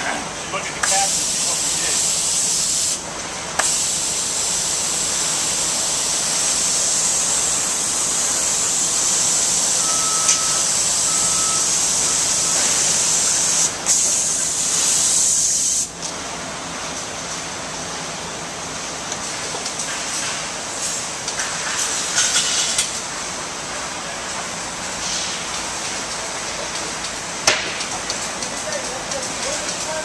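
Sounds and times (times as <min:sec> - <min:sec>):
compressed air spray hiss: 0:00.8 - 0:03.0, 0:03.6 - 0:09.8, 0:10.6 - 0:16.0
short electronic beeps: 0:09.7 - 0:12.0.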